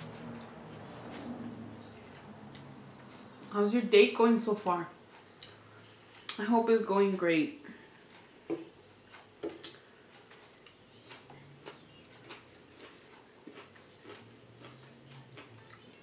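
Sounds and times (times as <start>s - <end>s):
chewing: 9.0s - 16.0s.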